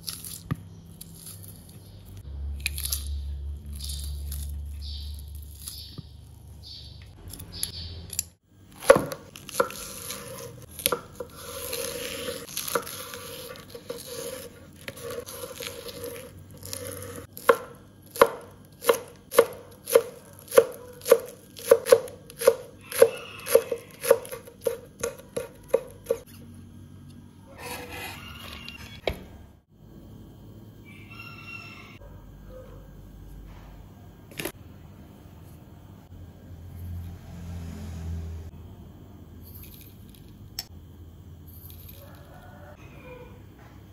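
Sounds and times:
knife chopping on wooden board: 8.8s - 26.2s.

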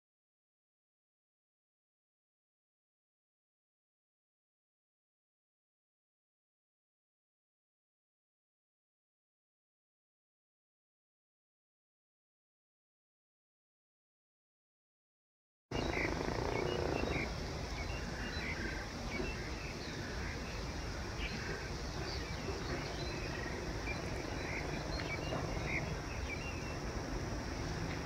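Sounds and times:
high insect hum: 15.7s - 28.0s
small birds chirping: 15.7s - 28.0s.

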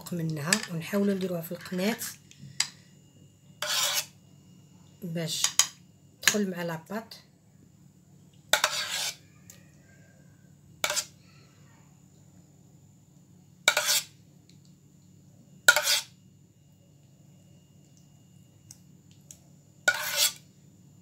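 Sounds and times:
spoon scraping dishware: 3.6s - 4.1s, 8.5s - 9.2s, 10.8s - 11.2s, 13.7s - 14.1s, 15.7s - 16.1s, 19.9s - 20.4s.

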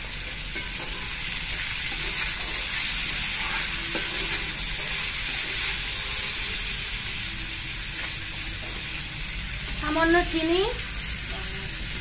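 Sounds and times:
potatoes sizzling in oil: 0.0s - 12.0s
metal spoon scraping pan: 0.4s - 6.8s.

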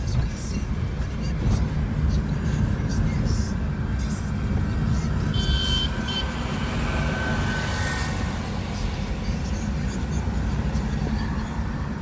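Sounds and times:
car engine rumble: 0.0s - 12.0s
tyres on road: 0.0s - 12.0s.

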